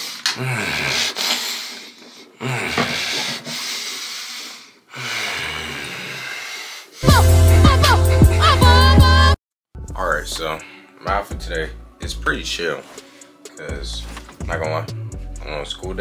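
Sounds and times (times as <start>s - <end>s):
loud bass-heavy music: 7.0s - 10.6s.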